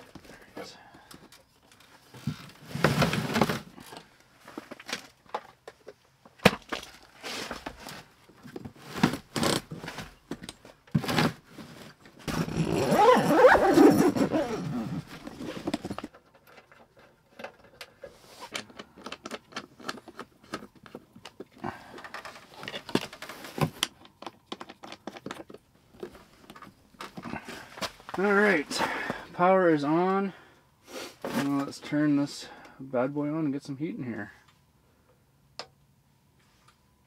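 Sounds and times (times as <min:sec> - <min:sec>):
scraping rustle: 0:11.0 - 0:16.1.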